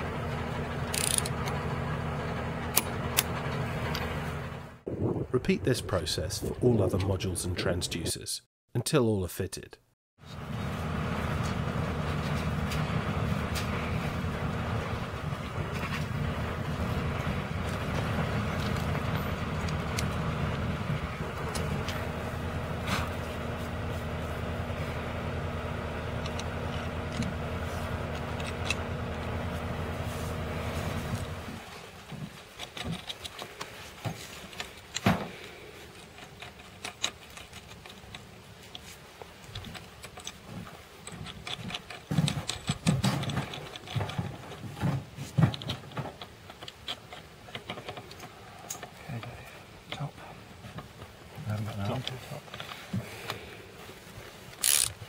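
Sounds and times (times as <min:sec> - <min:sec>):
low machine hum: 0:00.0 - 0:05.5, 0:10.2 - 0:32.0
metal fixings clicking and knocking: 0:00.8 - 0:01.6, 0:26.1 - 0:27.4, 0:28.0 - 0:29.3, 0:32.0 - 0:50.1.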